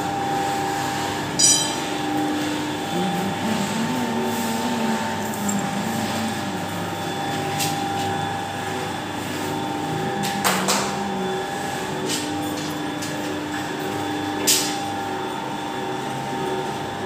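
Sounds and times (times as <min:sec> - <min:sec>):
machine mechanical hum: 0:00.0 - 0:17.0
constant high tone: 0:01.4 - 0:02.1, 0:02.7 - 0:08.3.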